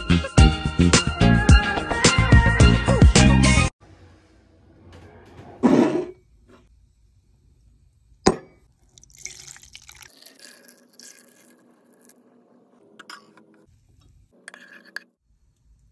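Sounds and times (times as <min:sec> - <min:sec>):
milk pouring and splashing: 0:08.7 - 0:12.2.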